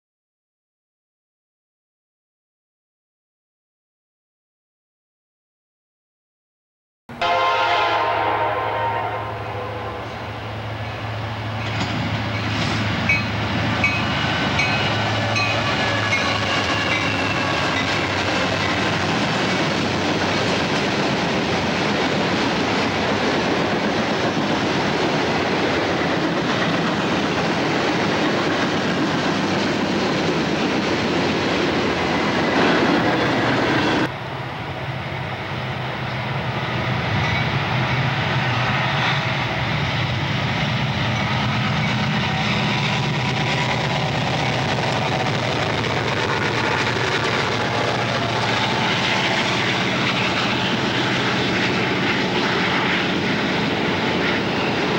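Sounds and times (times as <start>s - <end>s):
diesel locomotives: 7.1s - 54.9s
train wheels clacking over rail joints: 11.6s - 33.9s.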